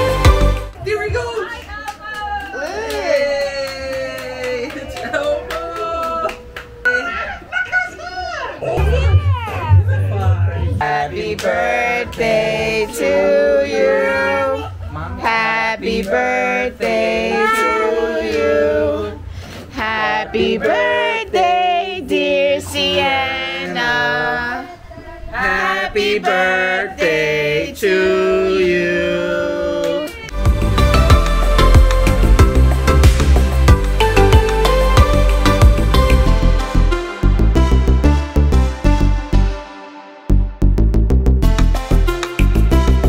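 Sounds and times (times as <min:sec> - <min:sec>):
person singing: 0:08.6 - 0:19.1, 0:25.4 - 0:30.1.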